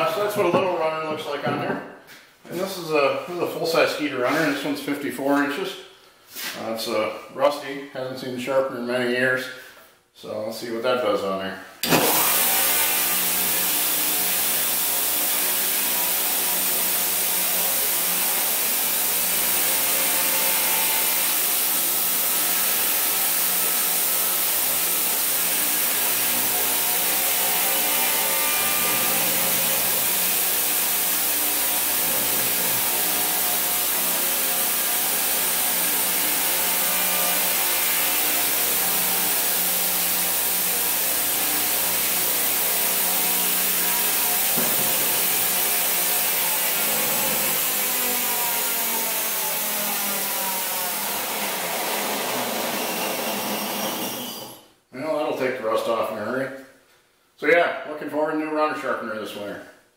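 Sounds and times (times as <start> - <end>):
belt sander grinding steel: 11.8 - 54.6.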